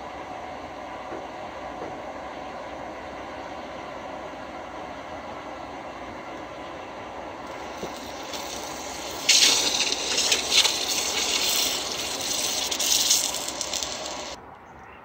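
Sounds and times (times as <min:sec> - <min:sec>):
hot blade hissing in liquid: 0:07.5 - 0:14.4.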